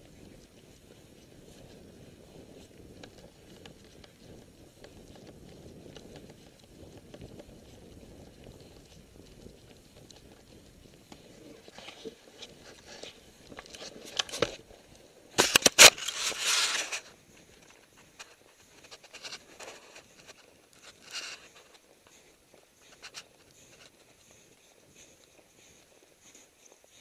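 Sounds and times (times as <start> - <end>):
wind rumble on microphone: 0.0 - 15.4
footsteps in snow: 0.0 - 27.0
crackling clicks: 2.6 - 24.3.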